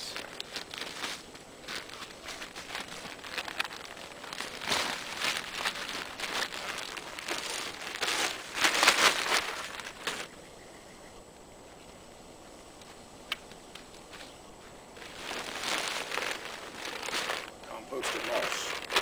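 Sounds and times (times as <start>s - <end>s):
plastic bag crinkling: 0.0s - 10.3s, 15.0s - 19.0s.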